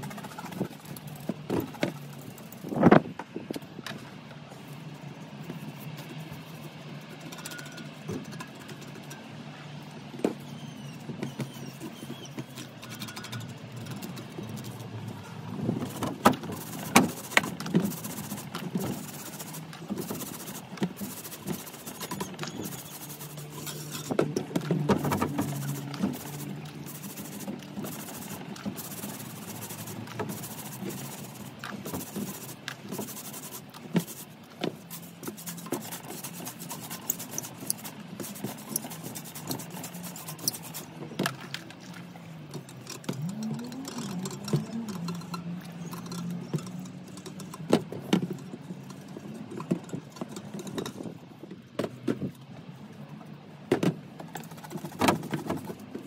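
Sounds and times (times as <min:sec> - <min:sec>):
low steady hum: 0:00.0 - 0:54.5
sponge scrubbing tyre: 0:10.0 - 0:51.1.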